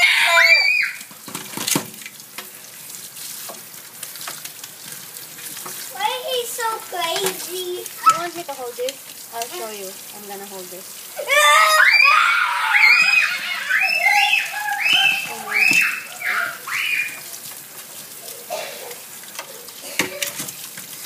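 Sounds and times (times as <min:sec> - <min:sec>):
person shrieking high-pitched squeals: 0:00.0 - 0:01.1, 0:11.2 - 0:17.3
tap water running into metal sink: 0:01.0 - 0:21.0.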